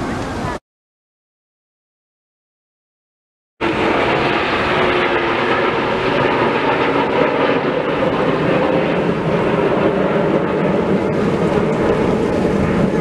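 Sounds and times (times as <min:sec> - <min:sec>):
jet engines flying overhead: 0:00.0 - 0:00.6, 0:03.6 - 0:13.0.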